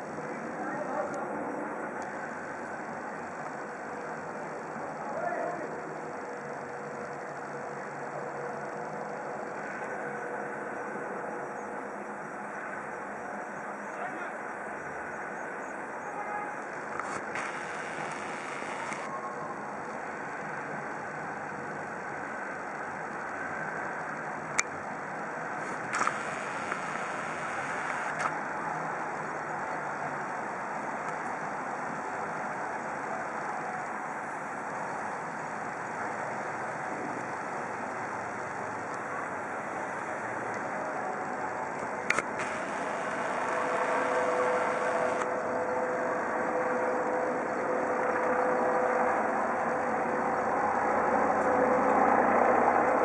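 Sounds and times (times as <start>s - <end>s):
road traffic noise: 5.8s - 53.0s
helicopter rotor and turbine: 16.7s - 28.5s, 34.7s - 53.0s
sharp clicks: 16.9s - 19.1s, 25.6s - 28.4s, 41.8s - 45.3s.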